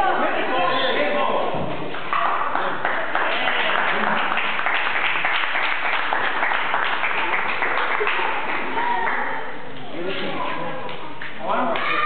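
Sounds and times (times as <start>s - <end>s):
crowd applauding: 2.1s - 9.4s.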